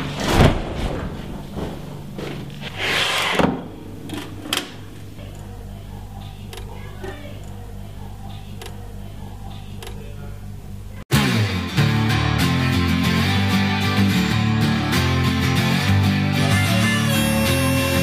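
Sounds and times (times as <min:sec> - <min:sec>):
record player hum: 0:03.4 - 0:11.0
strummed guitar music: 0:11.1 - 0:18.0.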